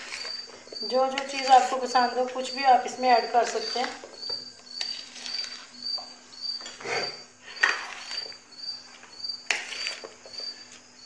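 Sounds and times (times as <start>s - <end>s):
cricket chirping: 0.0s - 11.0s
spoon scraping a ceramic plate: 3.2s - 6.0s, 6.6s - 8.4s, 9.5s - 10.6s.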